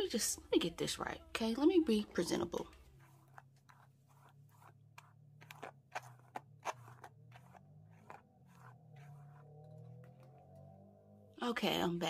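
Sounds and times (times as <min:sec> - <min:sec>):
wig hair scratchy strokes: 0:02.9 - 0:09.9.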